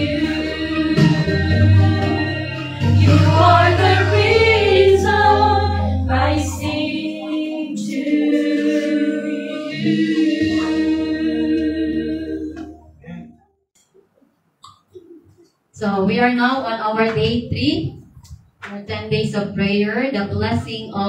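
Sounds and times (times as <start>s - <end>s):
women singing a religious song: 0.0s - 12.8s.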